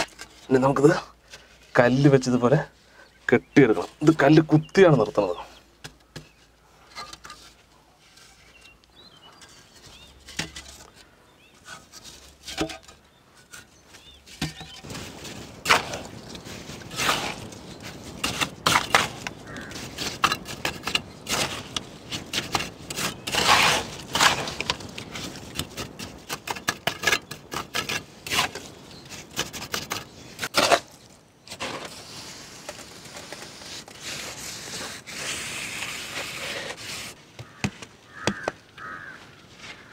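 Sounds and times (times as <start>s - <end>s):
trowel scraping mortar: 15.6s - 37.6s.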